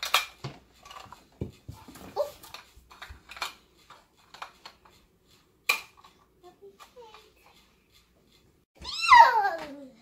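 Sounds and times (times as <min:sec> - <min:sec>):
plastic toy dishes clattering: 0:00.0 - 0:01.6.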